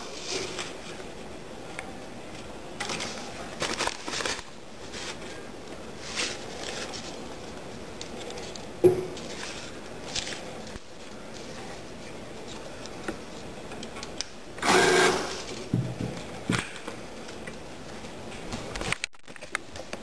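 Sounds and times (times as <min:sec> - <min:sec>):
banknotes rustling: 0:02.8 - 0:13.4.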